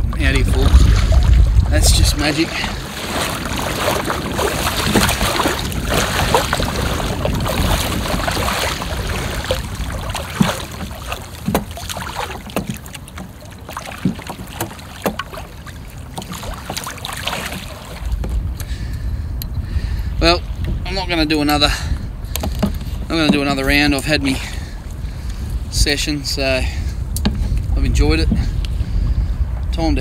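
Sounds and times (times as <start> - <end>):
knocks and splashes: 0.0 - 18.6, 22.3 - 25.5, 27.1 - 29.0
water lapping against hull: 0.0 - 30.0
wind buffeting microphone: 0.0 - 30.0.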